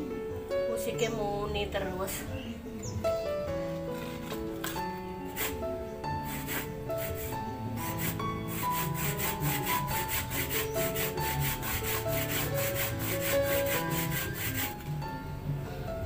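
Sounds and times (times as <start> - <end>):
music: 0.0 - 16.0
coconut grated by hand: 5.3 - 5.6, 6.2 - 15.0.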